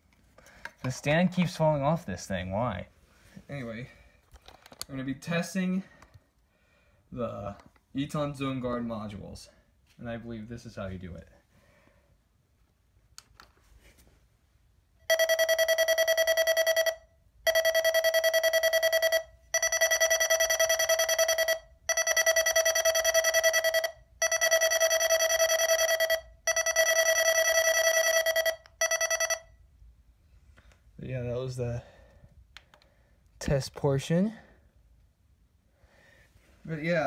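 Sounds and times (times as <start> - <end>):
rapidly pulsing high beep: 15.1 - 29.5.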